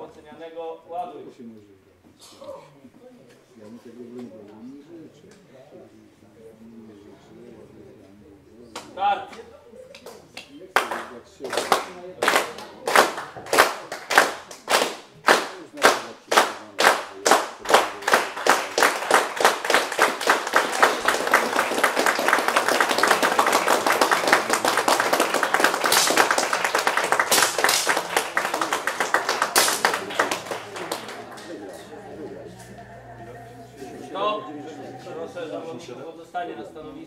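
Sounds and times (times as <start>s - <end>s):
audience clapping in unison: 10.0s - 32.7s.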